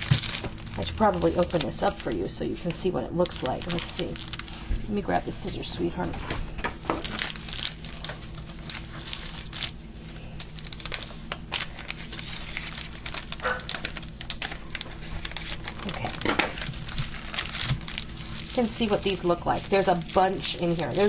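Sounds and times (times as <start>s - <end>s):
plastic package crinkling: 0.0s - 21.0s.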